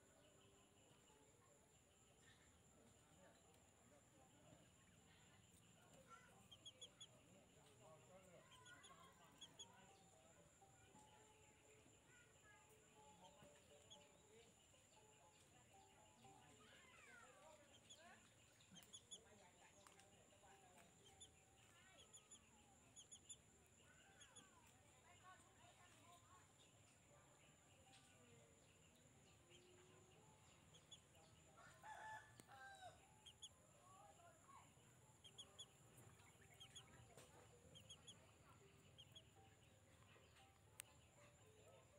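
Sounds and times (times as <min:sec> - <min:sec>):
faint bird chirps: 0:00.0 - 0:41.9
faint rooster crowing: 0:31.6 - 0:33.4.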